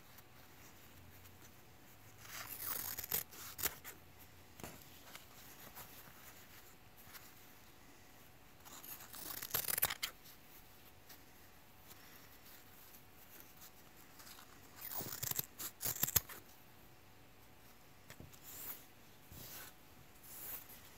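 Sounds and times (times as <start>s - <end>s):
scissors snipping fabric: 2.2s - 3.9s, 8.7s - 10.1s, 14.2s - 16.4s.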